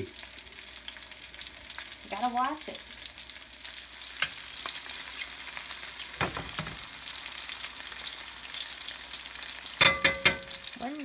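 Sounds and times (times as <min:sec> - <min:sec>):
fish sizzling in a pan: 0:00.0 - 0:11.0
sharp metallic clank: 0:09.8 - 0:10.6
spoon clicking against pan: 0:09.8 - 0:10.7.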